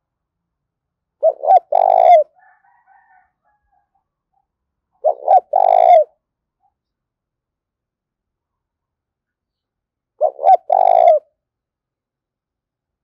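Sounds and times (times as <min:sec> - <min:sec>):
dove cooing: 0:01.2 - 0:03.1, 0:05.0 - 0:06.2, 0:10.2 - 0:11.3.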